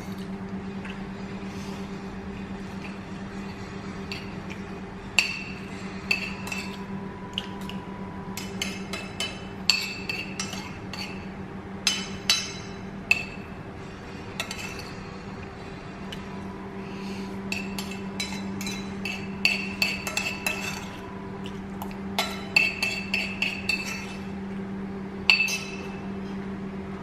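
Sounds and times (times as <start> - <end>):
steady low hum: 0.0 - 27.0
spoon clinking on ceramic plate: 25.3 - 25.9.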